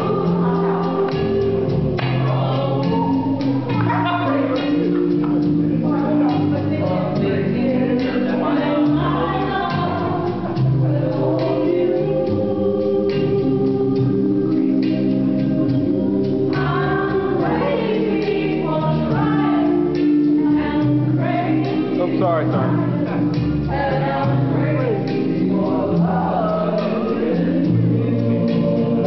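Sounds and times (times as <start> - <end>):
upbeat dance song with voices: 0.0 - 12.2, 16.6 - 29.0.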